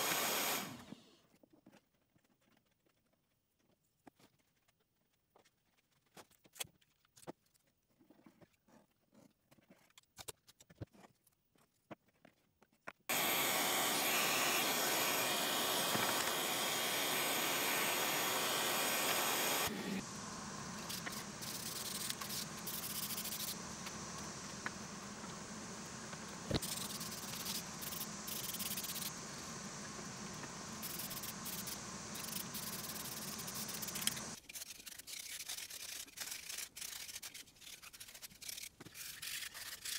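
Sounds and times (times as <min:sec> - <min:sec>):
aerosol spray can hissing: 0:00.0 - 0:00.8, 0:13.1 - 0:34.4
hand sanding scrape: 0:20.8 - 0:23.6, 0:26.5 - 0:29.1, 0:30.8 - 0:39.9.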